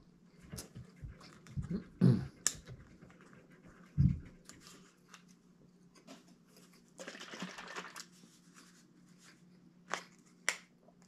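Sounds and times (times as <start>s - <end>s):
rustling and crinkling: 8.0s - 10.5s.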